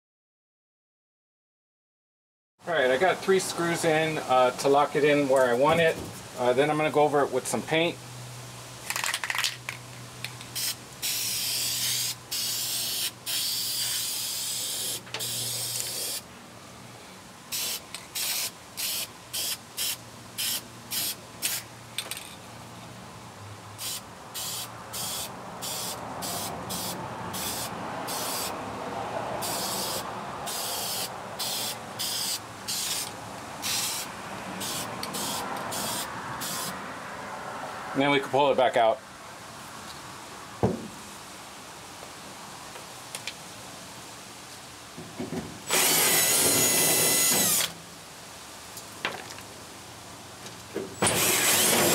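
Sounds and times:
spray paint can hissing: 10.4s - 16.2s, 17.5s - 21.7s, 23.8s - 28.5s, 29.4s - 36.7s.

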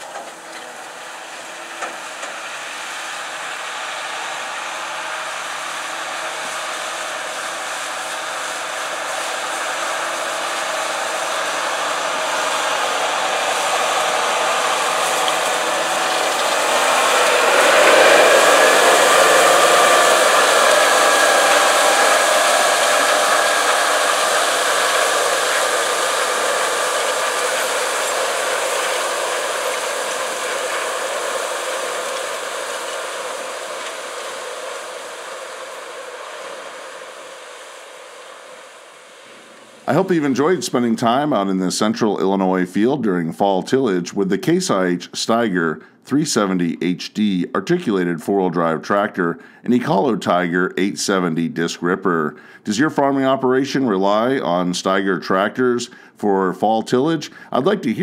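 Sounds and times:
discs rushing through soil: 0.0s - 40.4s
tractor diesel engine under load: 0.0s - 42.6s.

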